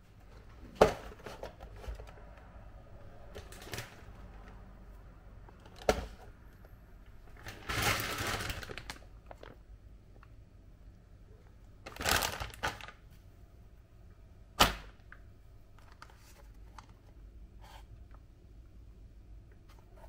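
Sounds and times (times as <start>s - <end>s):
plastic bag crinkling: 7.4s - 9.6s, 11.8s - 13.0s.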